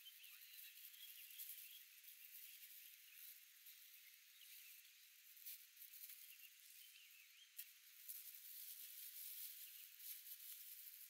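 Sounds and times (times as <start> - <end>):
faint chirp: 0.0 - 8.4.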